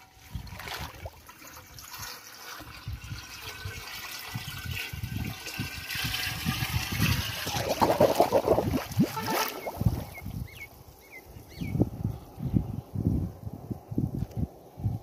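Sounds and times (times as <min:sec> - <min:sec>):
water gurgling and sloshing: 0:00.0 - 0:10.5.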